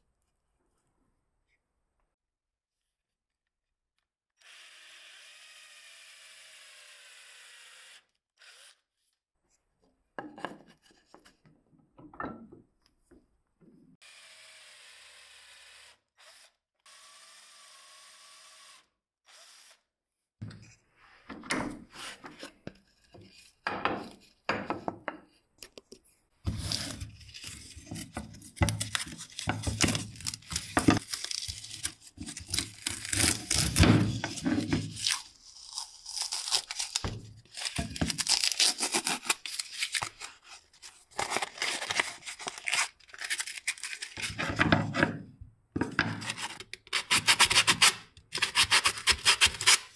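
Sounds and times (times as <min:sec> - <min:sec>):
paper peeling and tearing: 0:26.5 - 0:44.4
sandpaper rubbing on plywood: 0:47.0 - 0:49.9.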